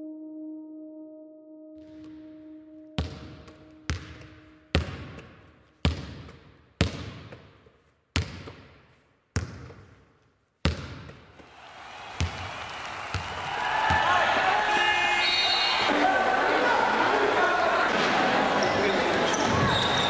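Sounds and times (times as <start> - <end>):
basketball bouncing on gym floor: 3.0 - 10.0, 10.6 - 11.4
crowd noise: 11.6 - 20.0.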